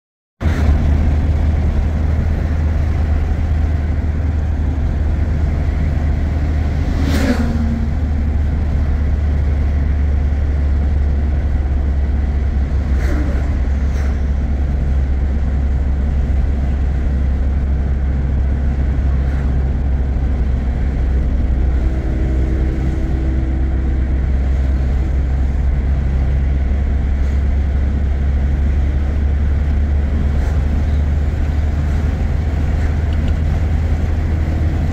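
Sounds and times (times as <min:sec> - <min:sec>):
car engine and road rumble: 0:00.4 - 0:34.9
vehicle passing: 0:00.9 - 0:14.9.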